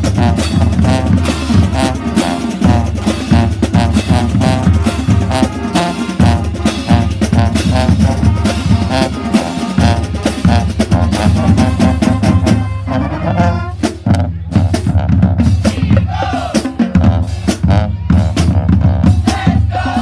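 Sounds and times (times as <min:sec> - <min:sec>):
brass horns playing: 0:00.0 - 0:20.0
snare and bass drums: 0:00.0 - 0:20.0.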